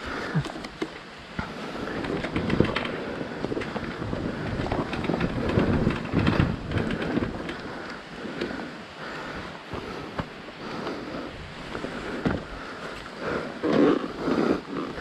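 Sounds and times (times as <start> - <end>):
stones and bike clattering: 0.4 - 7.7.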